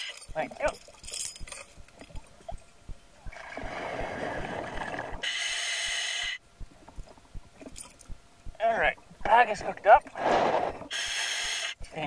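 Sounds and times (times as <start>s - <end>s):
exhaled bubbles underwater: 3.2s - 5.2s.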